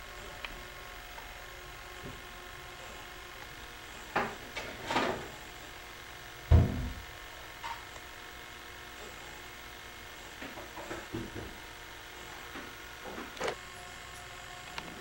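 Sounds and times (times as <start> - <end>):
steady low hum: 0.0 - 15.0
loud low thump: 6.5 - 7.1.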